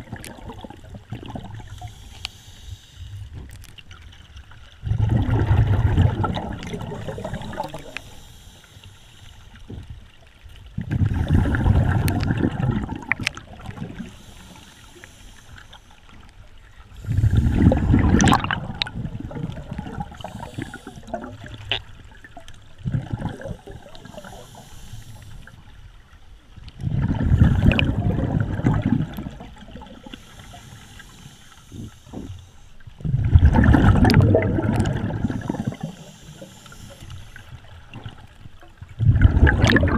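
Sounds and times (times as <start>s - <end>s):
diver exhaling bubbles underwater: 4.8s - 8.0s, 10.8s - 14.1s, 17.0s - 24.4s, 26.8s - 30.0s, 33.0s - 36.2s, 39.0s - 39.9s.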